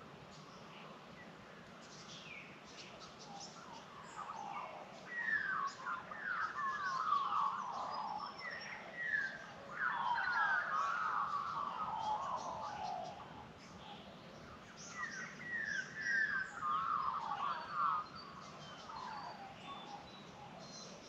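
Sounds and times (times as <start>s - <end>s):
faint high bird chirps: 3.0s - 21.0s
magpies warbling: 9.8s - 13.2s.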